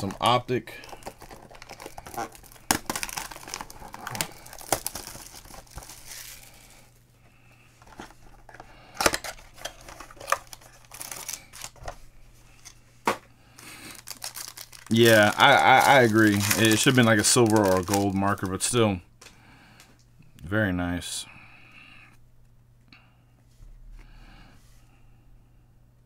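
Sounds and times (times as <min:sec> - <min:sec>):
plastic shrink-wrap crinkling and tearing: 0:00.0 - 0:06.7, 0:09.0 - 0:11.8, 0:13.6 - 0:18.8.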